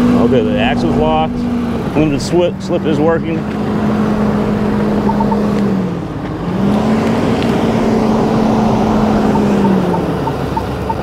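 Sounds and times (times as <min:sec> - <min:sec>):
diesel truck engine under load: 0:00.0 - 0:11.0
faint repeated beep: 0:05.0 - 0:05.5, 0:09.6 - 0:11.0.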